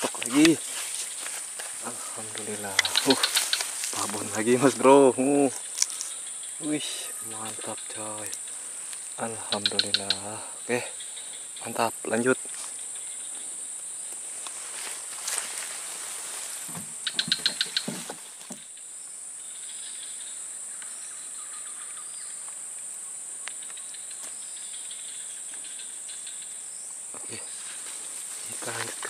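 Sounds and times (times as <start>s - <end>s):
swamp insects droning: 0.0s - 29.0s
sharp chirps: 1.8s - 11.9s.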